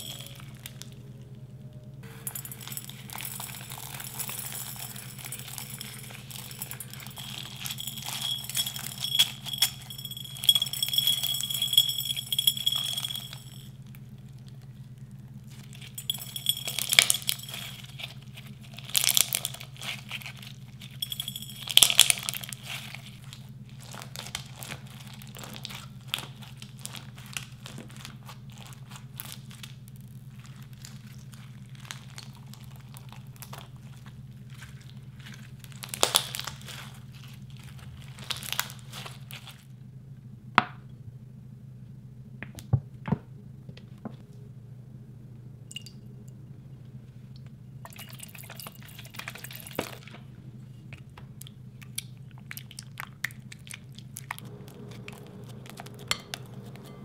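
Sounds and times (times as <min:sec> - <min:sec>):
steady low hum: 0:00.0 - 0:57.0
slime crackling and squishing: 0:02.5 - 0:11.7, 0:14.1 - 0:21.0, 0:21.6 - 0:39.7.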